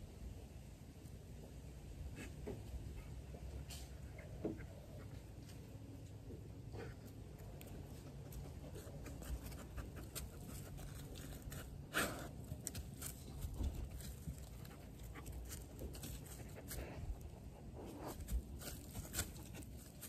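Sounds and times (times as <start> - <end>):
dog breathing and sniffing: 6.6 - 20.0.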